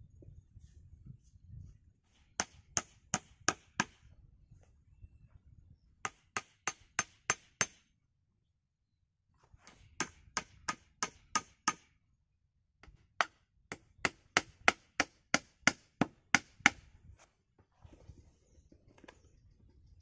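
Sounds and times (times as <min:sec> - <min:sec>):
hatchet striking wood: 0:02.4 - 0:04.0, 0:06.0 - 0:07.8, 0:09.7 - 0:12.0, 0:12.8 - 0:16.9.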